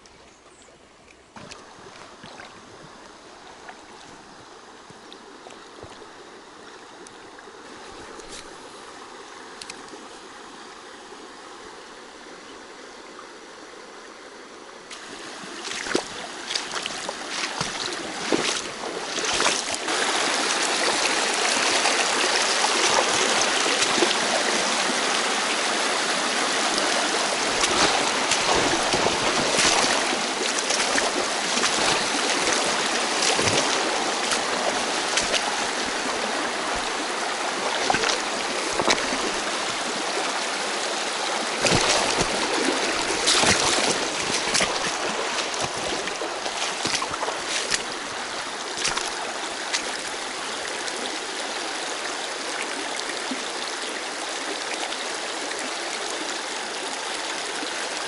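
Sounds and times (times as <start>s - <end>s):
stream rushing over rocks: 1.4s - 12.4s, 14.6s - 58.0s
sharp water splashes: 14.9s - 50.7s.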